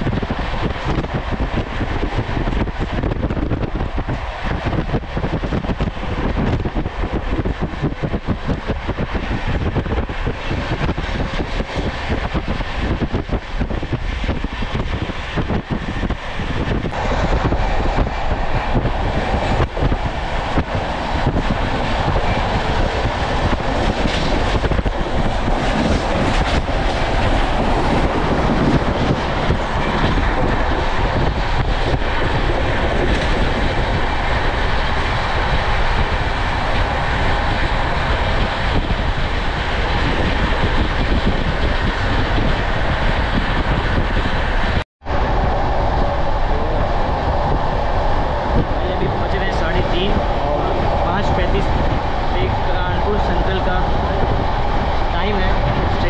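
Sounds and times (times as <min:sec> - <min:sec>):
train wheels rushing on rails: 0:00.0 - 0:56.0.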